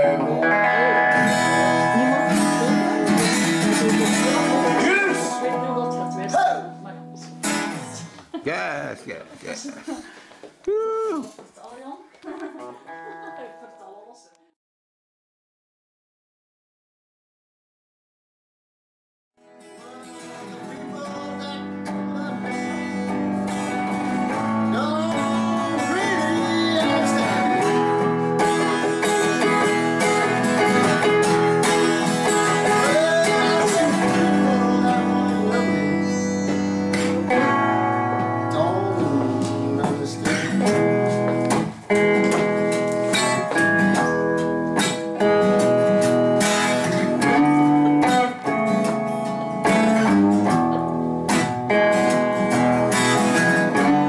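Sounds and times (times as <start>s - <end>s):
electric guitar: 0.0s - 8.6s, 19.4s - 54.0s
acoustic guitar: 0.0s - 11.6s, 19.4s - 54.0s.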